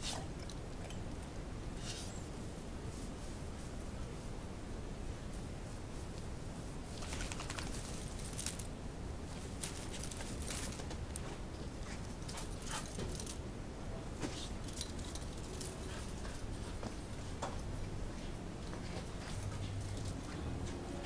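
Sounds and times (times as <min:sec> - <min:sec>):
dogs scuffling: 0:06.9 - 0:13.4.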